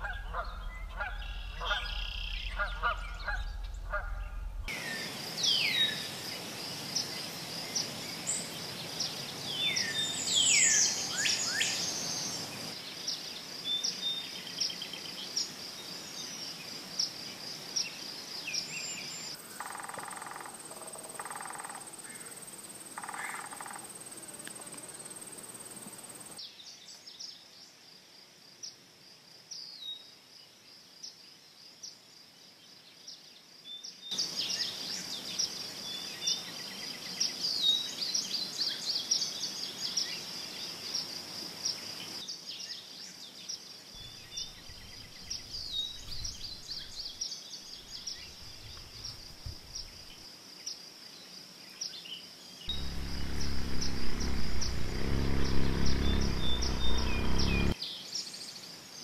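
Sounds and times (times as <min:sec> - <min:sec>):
low hum: 0:00.0 - 0:04.7, 0:52.7 - 0:57.8
bird chirps: 0:00.0 - 0:06.0, 0:44.0 - 0:50.1, 0:52.7 - 0:57.8
insect chorus: 0:00.0 - 0:59.0.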